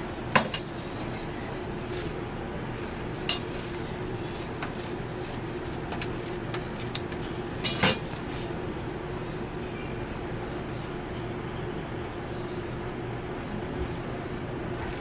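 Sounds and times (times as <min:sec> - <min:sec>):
waffles crackling: 0:00.0 - 0:09.6, 0:13.4 - 0:15.0
steady hum: 0:00.0 - 0:15.0.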